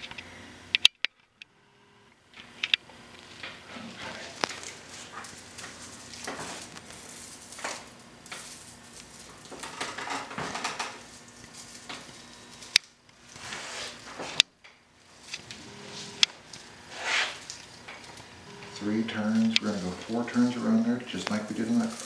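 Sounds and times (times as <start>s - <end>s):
stalks rustling and scratching: 3.2s - 12.7s, 21.2s - 22.0s.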